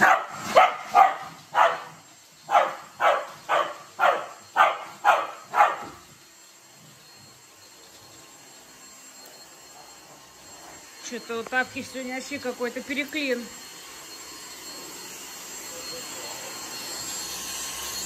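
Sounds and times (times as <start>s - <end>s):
dog barking: 0.0s - 6.0s.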